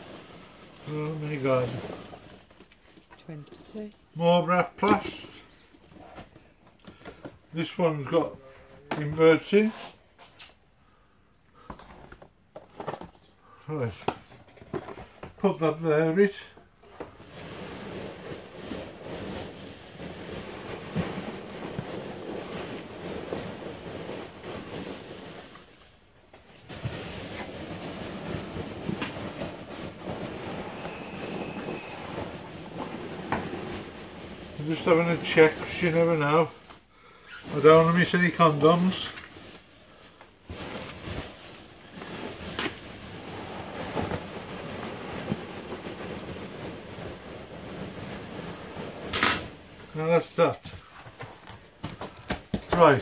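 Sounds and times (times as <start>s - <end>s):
hands rummaging through packing material: 16.6s - 53.0s
sharp knocks and crackles: 50.6s - 53.0s.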